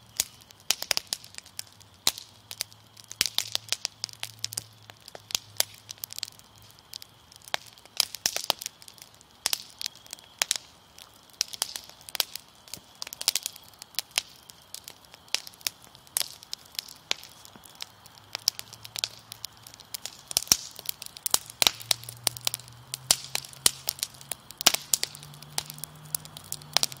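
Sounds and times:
fire pops and snaps: 0.0s - 27.0s
wood fire crackling: 0.0s - 27.0s.

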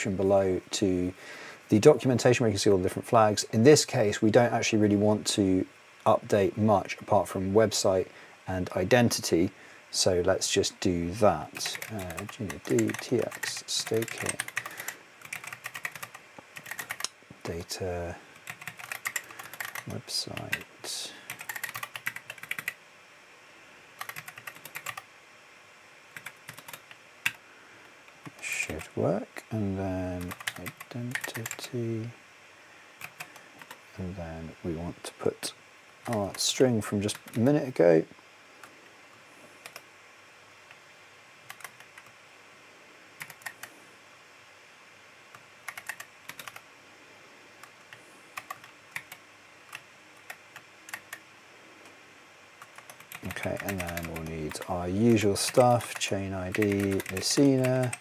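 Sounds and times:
computer keyboard typing: 11.5s - 17.7s, 18.4s - 20.7s, 21.3s - 22.8s, 24.0s - 25.0s, 26.1s - 27.4s, 30.2s - 31.7s, 33.0s - 33.8s, 36.0s - 36.5s, 37.1s - 37.5s, 39.6s - 39.8s, 41.5s - 42.1s, 43.2s - 43.7s, 45.6s - 46.6s, 47.9s - 51.2s, 52.6s - 58.0s.

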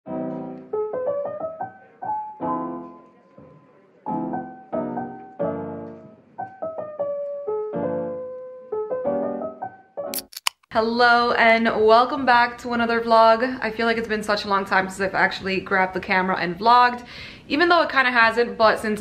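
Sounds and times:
solo piano music: 0.1s - 10.1s.

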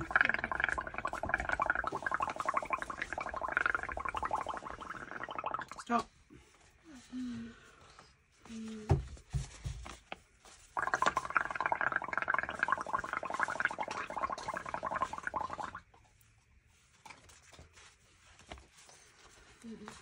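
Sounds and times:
bubbling through a straw: 0.0s - 6.0s, 10.7s - 16.0s.

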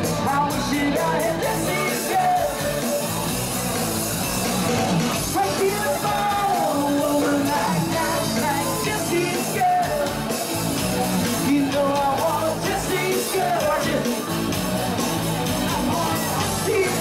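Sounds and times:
person singing: 0.0s - 3.2s, 5.3s - 10.5s, 11.2s - 14.4s, 15.7s - 17.0s
live band playing dance music: 0.0s - 17.0s.

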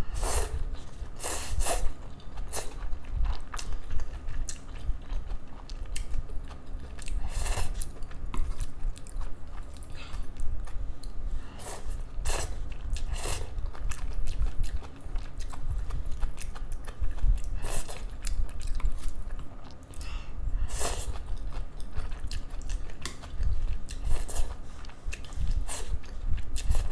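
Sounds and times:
chewing noodles: 0.2s - 20.1s, 20.7s - 26.9s
loud noodle slurps: 1.2s - 1.9s.

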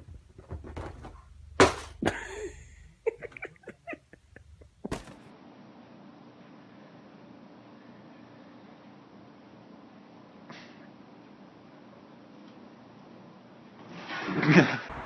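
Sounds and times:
person laughing: 2.0s - 5.1s.

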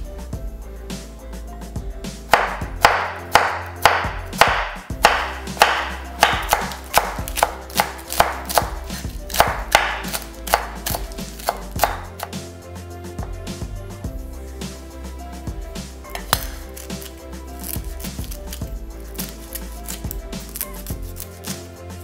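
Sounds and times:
knife chopping on wooden board: 2.3s - 12.4s, 16.1s - 21.6s.

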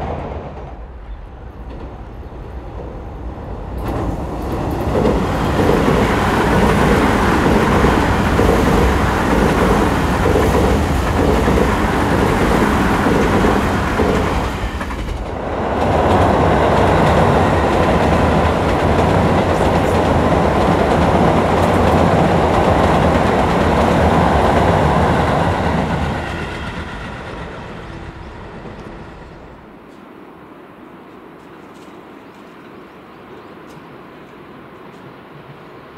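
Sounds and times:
electric train passing: 0.0s - 35.9s.

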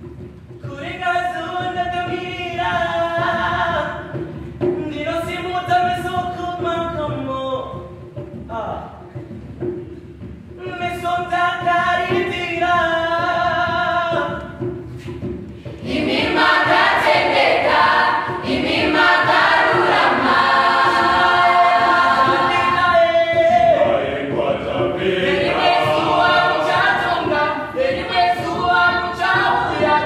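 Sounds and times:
children's choir singing: 15.8s - 30.0s.

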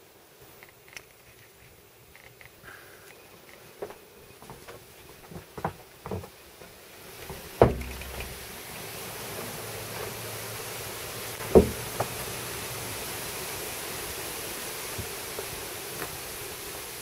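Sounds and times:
steady outdoor hiss: 0.0s - 17.0s
loud thump: 7.3s - 8.4s, 11.4s - 12.1s
light knock: 11.5s - 12.1s.

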